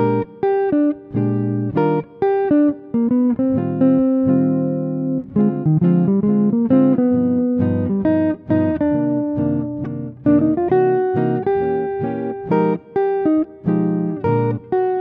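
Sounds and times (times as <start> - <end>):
plucked string instrumental music: 0.0 - 15.0.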